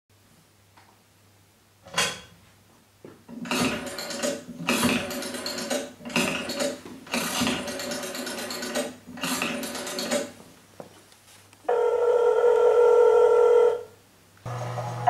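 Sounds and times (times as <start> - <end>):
small mechanism ratcheting and whirring: 3.4 - 10.3.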